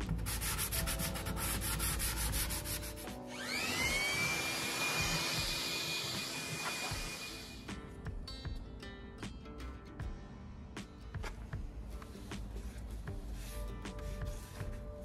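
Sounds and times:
sandpaper rubbing on wood: 0.1s - 3.2s, 12.2s - 14.9s
electric blower whining: 3.2s - 7.7s.

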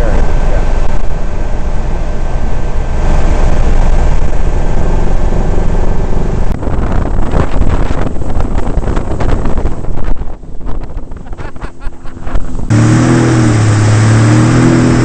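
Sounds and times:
boat running fast through water: 0.0s - 15.0s
wind buffeting microphone: 0.0s - 15.0s
high whine: 11.3s - 15.0s.

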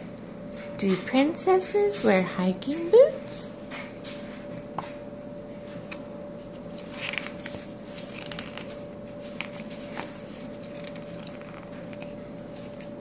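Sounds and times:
faint hum: 0.0s - 13.0s
book pages rustling: 5.7s - 13.0s.

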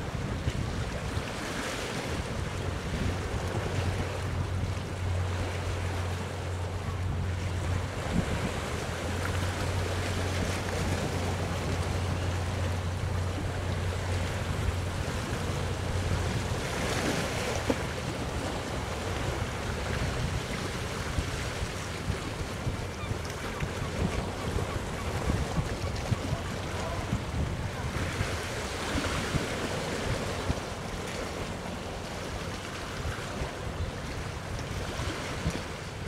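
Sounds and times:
boat engine droning: 0.0s - 36.0s
sea noise: 0.0s - 36.0s
wind on microphone: 6.6s - 30.9s.

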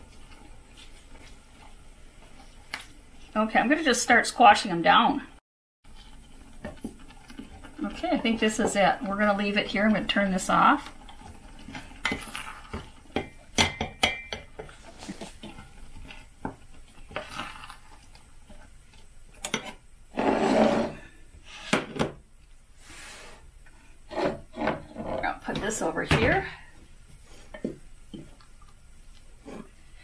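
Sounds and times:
wooden spoon stirring in saucepan: 5.9s - 19.8s.

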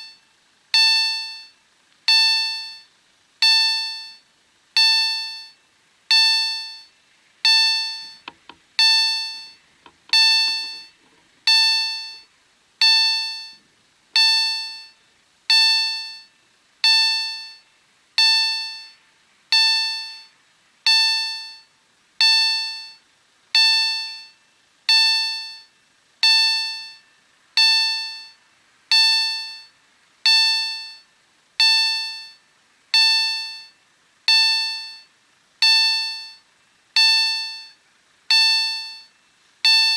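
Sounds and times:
level crossing warning bell: 7.5s - 12.2s.

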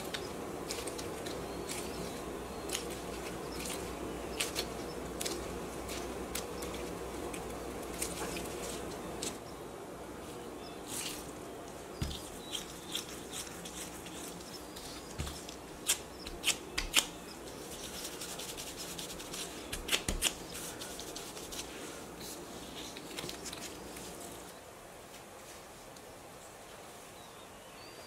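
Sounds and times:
hands rubbing dough: 0.0s - 9.4s, 12.0s - 24.4s.

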